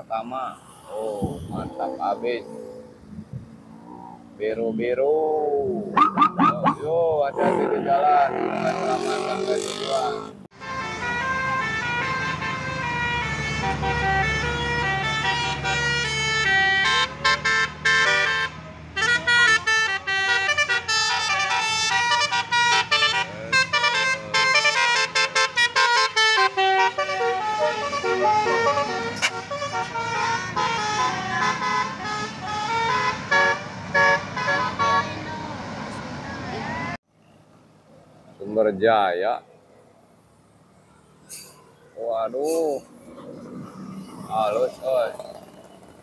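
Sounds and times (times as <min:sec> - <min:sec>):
bus engine rumble: 0:00.0 - 0:38.4, 0:39.6 - 0:46.0
bus horn playing melody: 0:09.9 - 0:35.3.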